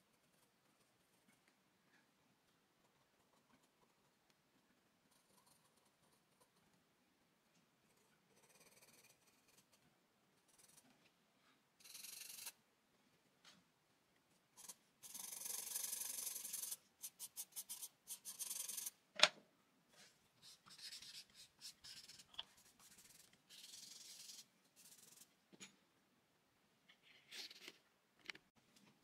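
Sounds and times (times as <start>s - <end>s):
charcoal pencil scratching paper: 0.0s - 1.3s, 5.1s - 6.6s, 7.9s - 9.8s, 10.4s - 10.9s, 11.8s - 12.6s, 14.6s - 19.0s, 20.0s - 25.3s.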